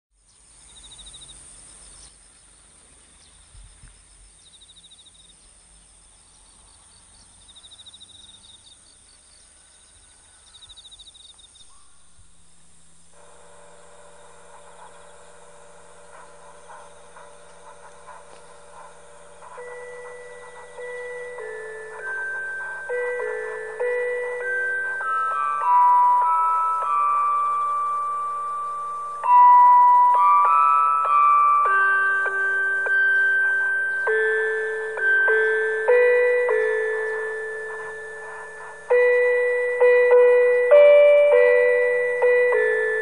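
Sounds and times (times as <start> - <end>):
loudspeaker hum and hiss: 0.2 - 43.0
steady high hiss: 0.2 - 43.0
high chirping trills: 0.3 - 43.0
chime notes: 13.2 - 43.0.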